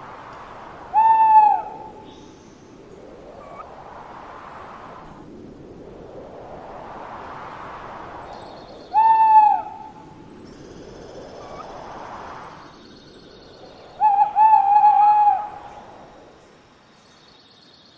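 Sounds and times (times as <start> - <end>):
soft steady hiss: 0.0 - 17.9
owl hoots: 0.9 - 2.1, 8.9 - 9.9, 13.9 - 15.8.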